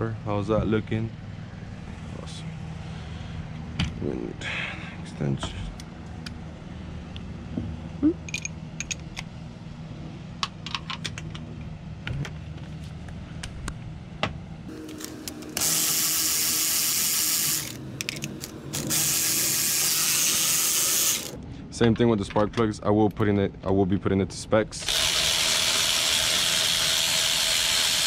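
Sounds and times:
electric ratchet running: 14.7 - 21.4, 24.8 - 28.0
hand tools clicking and clinking: 17.4 - 19.3.

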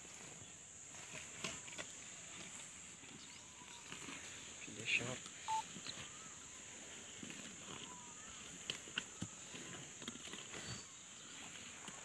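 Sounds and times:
crunching and knocking of feeding: 7.2 - 12.0.

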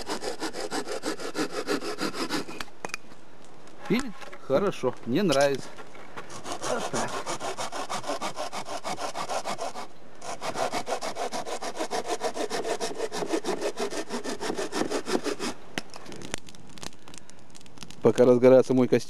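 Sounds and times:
hand saw cutting log: 0.0 - 2.7, 6.3 - 15.6.

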